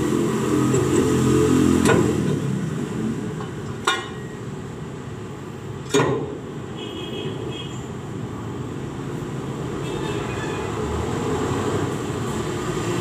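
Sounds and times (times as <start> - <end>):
sharp metal clanks: 3.4 - 4.4.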